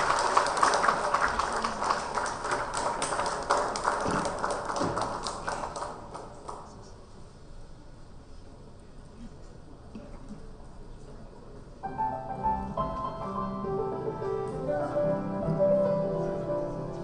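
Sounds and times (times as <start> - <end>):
audience applause: 0.0 - 6.8.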